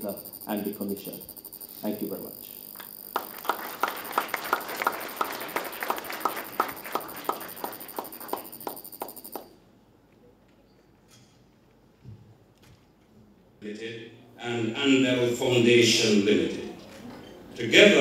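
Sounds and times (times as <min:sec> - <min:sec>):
audience applauding: 0:03.1 - 0:09.5.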